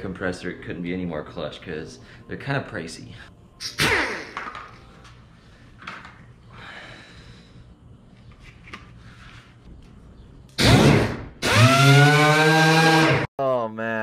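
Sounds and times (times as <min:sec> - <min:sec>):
pneumatic sander spinning up: 0:10.6 - 0:13.3.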